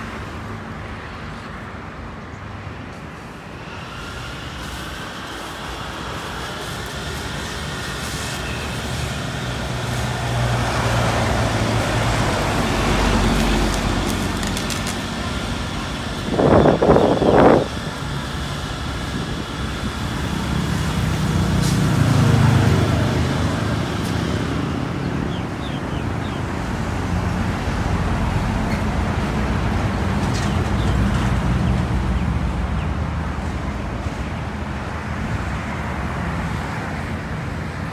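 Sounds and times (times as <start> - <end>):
road traffic passing: 0.0 - 37.9
fire truck engine running: 3.0 - 37.9
hose spraying water: 3.5 - 24.8.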